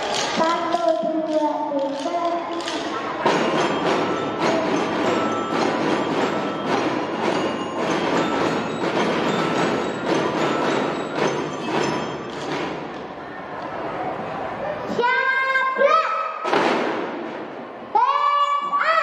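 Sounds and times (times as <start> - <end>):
marching snare drums: 3.0 - 12.9
high ringing bell notes: 3.2 - 13.0.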